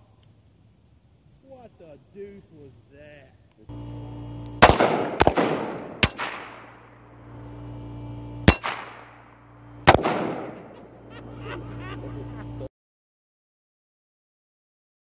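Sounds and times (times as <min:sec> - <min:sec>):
plastic bottles bursting with bangs: 0:04.6 - 0:06.8, 0:08.5 - 0:09.2, 0:09.9 - 0:10.6.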